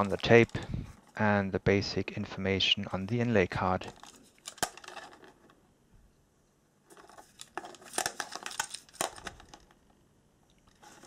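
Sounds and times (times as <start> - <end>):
rustling: 2.8 - 6.2, 6.8 - 11.0
plastic cassette case clicking: 3.9 - 5.3, 7.0 - 9.8.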